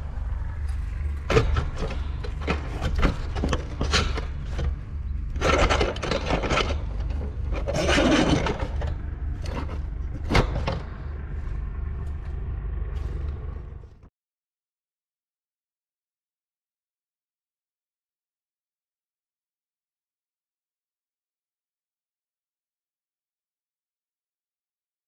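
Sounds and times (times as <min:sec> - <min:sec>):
steady low rumble: 0:00.0 - 0:14.1
knocks clicks and scraping: 0:00.6 - 0:13.9.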